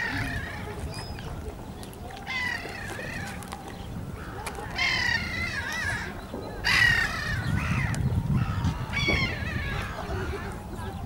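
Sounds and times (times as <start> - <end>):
gulls calling: 0.0 - 11.0.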